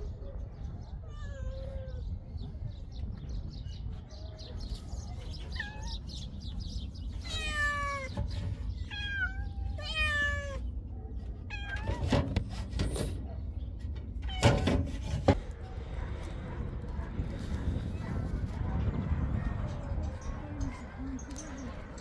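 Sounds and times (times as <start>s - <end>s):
cats meowing: 0.7s - 2.4s, 4.8s - 12.4s.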